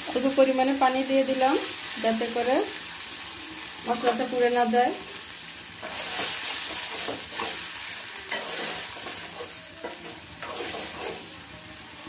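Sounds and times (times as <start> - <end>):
onions sizzling in hot oil: 0.0 - 12.0
metal spatula stirring in a pot: 5.8 - 11.3.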